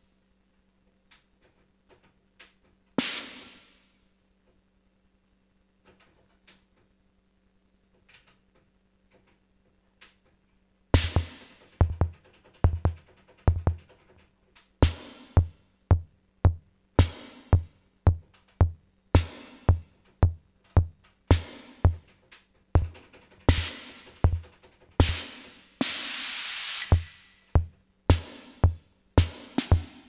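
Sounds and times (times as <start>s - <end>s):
drum machine low thumps: 11.0s - 14.1s, 14.8s - 22.2s, 22.8s - 25.5s, 26.9s - 30.0s.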